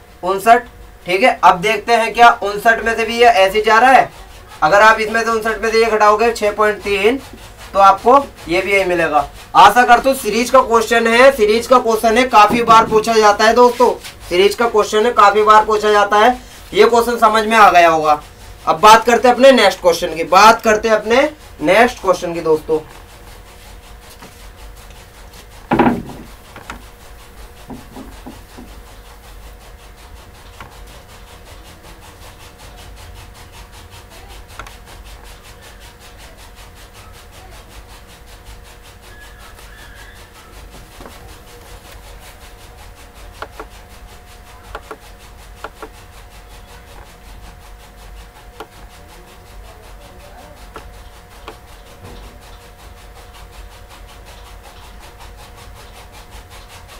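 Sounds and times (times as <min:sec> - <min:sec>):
duster rubbing whiteboard: 0:00.0 - 0:56.9
sharp knock: 0:12.4 - 0:13.8, 0:25.7 - 0:26.8, 0:27.7 - 0:28.8
faint taps: 0:25.7 - 0:26.8, 0:27.7 - 0:28.8.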